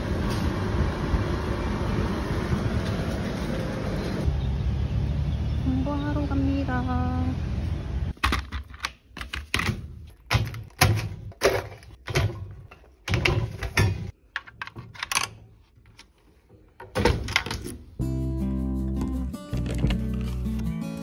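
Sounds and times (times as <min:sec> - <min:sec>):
background music: 0:18.0 - 0:21.0.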